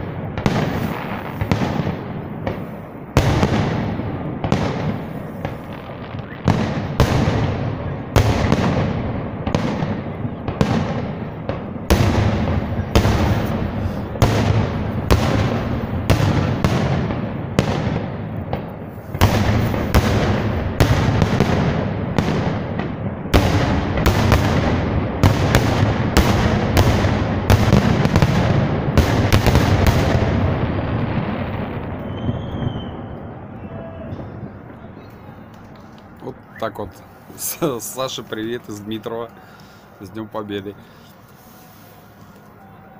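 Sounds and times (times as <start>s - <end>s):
fireworks bursting: 0.0s - 42.9s.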